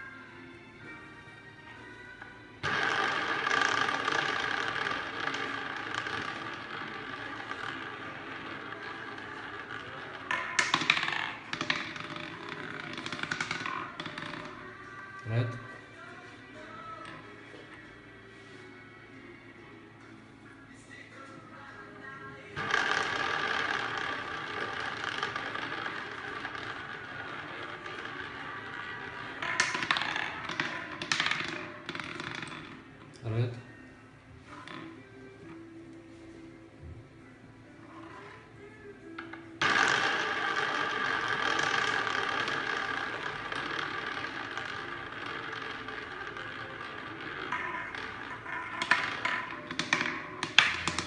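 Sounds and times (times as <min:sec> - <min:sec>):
roulette ball rolling whir: 0:00.9 - 0:18.8, 0:22.5 - 0:51.0
roulette ball rattling into pockets: 0:02.2 - 0:17.8, 0:22.6 - 0:33.2, 0:34.4 - 0:35.6, 0:39.1 - 0:51.0.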